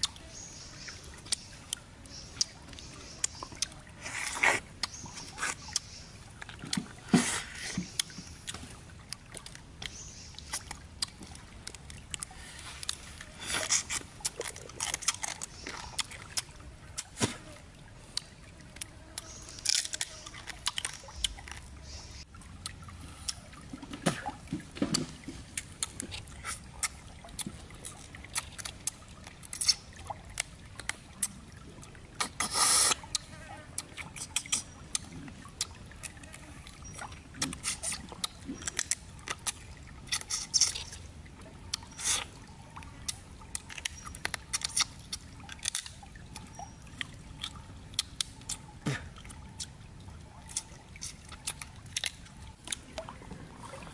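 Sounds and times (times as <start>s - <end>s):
wet chewing and lip smacks: 1.2s - 6.9s, 7.7s - 17.2s, 18.1s - 21.7s, 22.6s - 23.5s, 25.5s - 31.4s, 32.1s - 36.2s, 36.8s - 41.0s, 41.6s - 53.1s
crab shell crunching: 13.6s - 17.1s, 43.1s - 46.0s.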